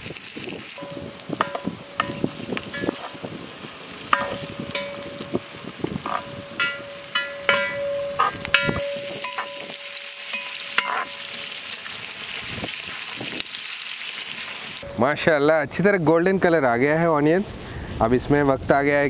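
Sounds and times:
onions sizzling in oil: 0:00.0 - 0:14.9
metal bowls clinking: 0:00.8 - 0:03.3, 0:04.1 - 0:11.6.

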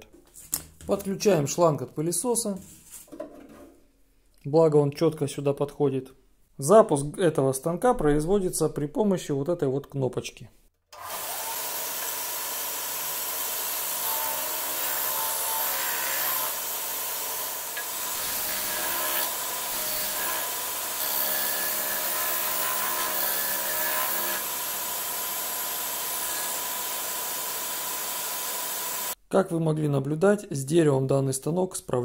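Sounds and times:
disc sander running: 0:11.0 - 0:29.2
shop vacuum running: 0:23.9 - 0:29.2.

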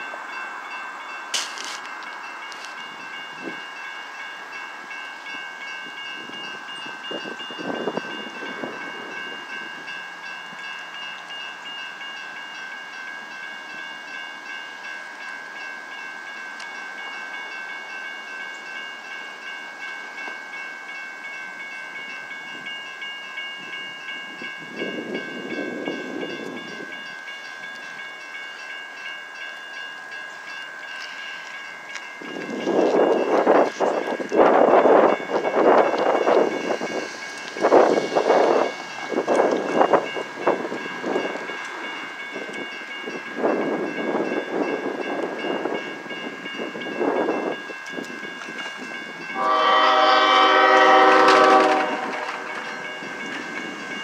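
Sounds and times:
crossing warning bell ringing: 0:00.0 - 0:54.0.

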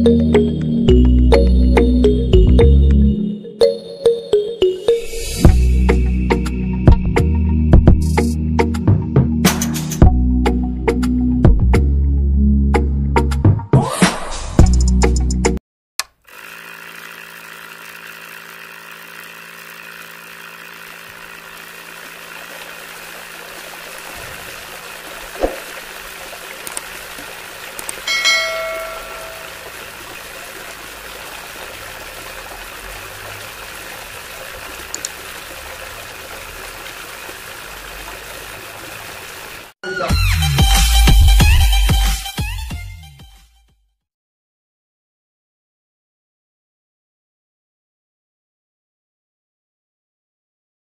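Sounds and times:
small motor running: 0:16.2 - 0:39.7
water trickling: 0:20.6 - 0:39.7
brief chime: 0:28.1 - 0:29.6.

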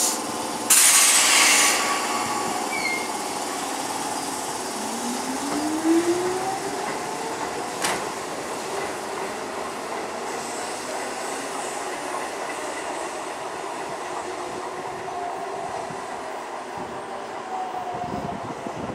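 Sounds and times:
distant train whine: 0:00.0 - 0:18.9
train wheels on rails: 0:00.0 - 0:18.9
electric train motor whine: 0:01.7 - 0:07.1.

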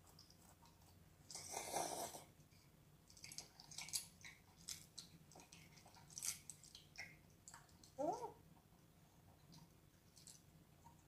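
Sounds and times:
wet chewing sounds: 0:02.4 - 0:08.0, 0:09.2 - 0:11.0.

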